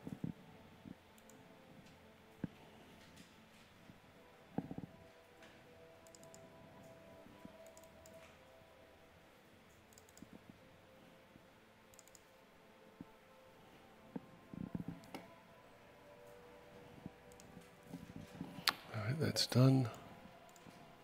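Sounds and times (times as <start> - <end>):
computer mouse clicks: 1.2 - 1.4, 6.0 - 6.5, 7.6 - 8.4, 9.7 - 10.4, 11.9 - 12.3, 14.7 - 15.3, 17.3 - 17.7, 20.5 - 20.8.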